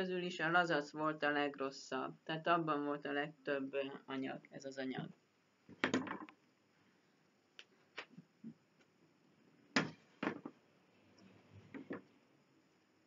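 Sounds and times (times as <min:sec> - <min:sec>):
wooden chalkboard knocking: 0:09.8 - 0:10.6.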